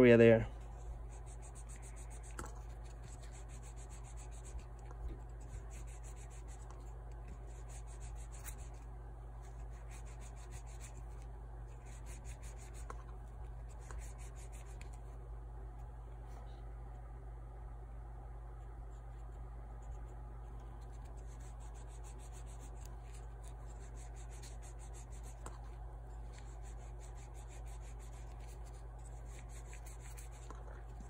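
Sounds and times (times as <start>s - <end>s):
steady low hum: 0.0s - 31.0s
toothbrush rubbing on metal: 0.1s - 8.8s, 9.4s - 15.0s, 20.7s - 31.0s.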